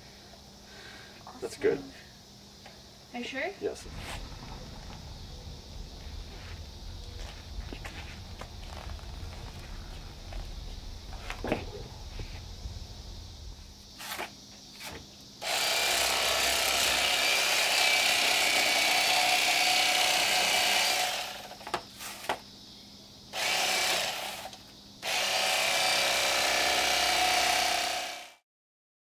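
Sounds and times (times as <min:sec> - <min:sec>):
electric knife motor running: 0:15.4 - 0:21.6, 0:23.3 - 0:28.4.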